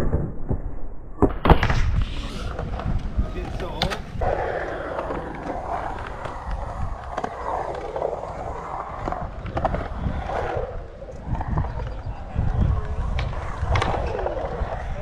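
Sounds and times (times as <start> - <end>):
sharp skateboard clicks: 1.4 - 15.0
skateboard wheels rolling on concrete: 1.4 - 15.0.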